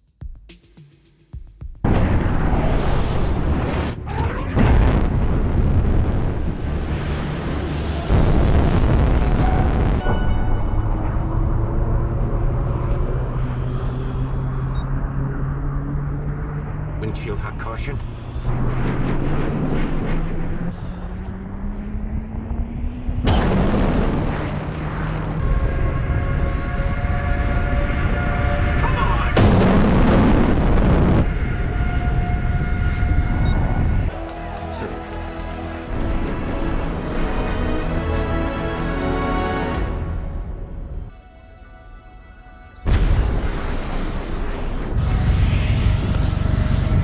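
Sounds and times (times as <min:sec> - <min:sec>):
loud blast: 0:01.8 - 0:11.9, 0:23.2 - 0:34.4, 0:42.8 - 0:47.0
deep rumble with rising tone: 0:01.8 - 0:38.4, 0:42.8 - 0:47.0
jet engine roaring: 0:01.9 - 0:38.1, 0:43.2 - 0:47.0
steady musical tones: 0:30.7 - 0:43.4.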